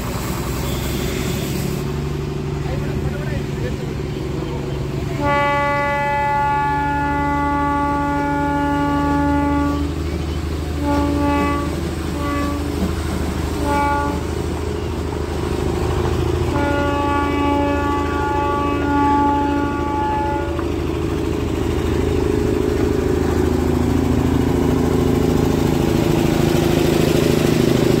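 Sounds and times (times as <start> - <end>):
low engine rumble: 0.0 - 28.0
train whistle blasts: 0.3 - 1.9, 5.2 - 10.2, 10.8 - 12.9, 13.6 - 14.4, 16.5 - 20.7.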